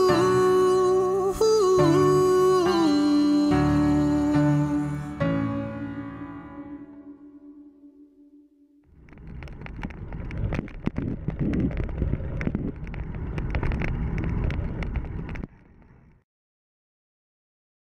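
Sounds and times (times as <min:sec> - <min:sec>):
bicycle tyre rumble: 0:08.9 - 0:16.2
bicycle clicks and rattles: 0:09.0 - 0:16.0
wind buffeting microphone: 0:09.0 - 0:16.2.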